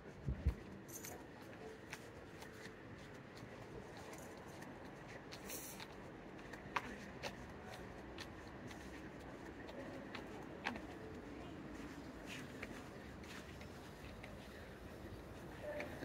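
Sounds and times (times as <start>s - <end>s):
footsteps on tiled sidewalk: 0.0s - 16.0s
quiet city street ambience: 0.0s - 16.0s.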